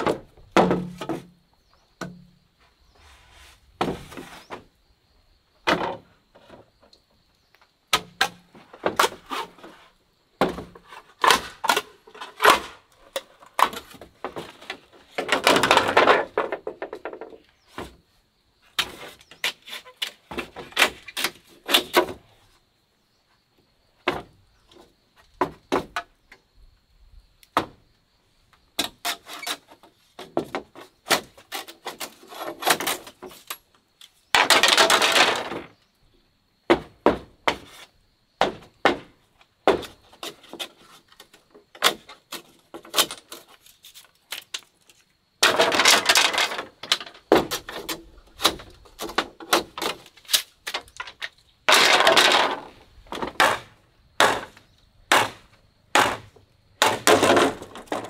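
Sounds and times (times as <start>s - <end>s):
bamboo crackling tearing: 41.8s - 45.1s, 47.7s - 51.4s
machete knocking on bamboo: 53.2s - 57.2s.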